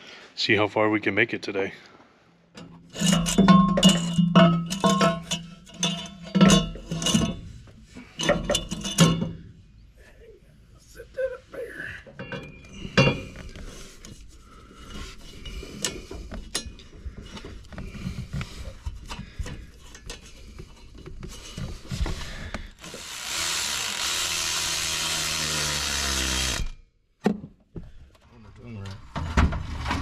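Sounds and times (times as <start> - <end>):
hand tools clicking and clanking: 2.6 - 9.5, 12.0 - 24.2.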